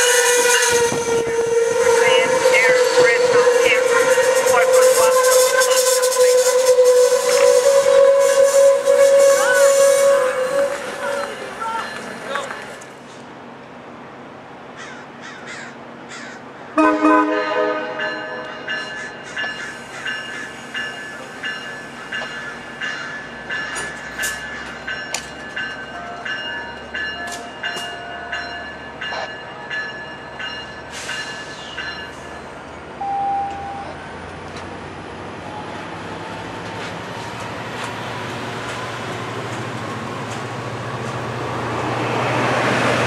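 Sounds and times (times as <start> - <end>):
train rolling rumble: 0.0 - 43.0
train wheels clicking over rail joints: 18.7 - 32.3, 35.7 - 43.0.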